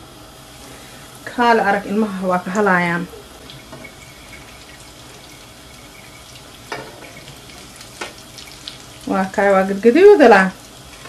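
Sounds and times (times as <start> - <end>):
oil bubbling sizzle: 0.4 - 11.0.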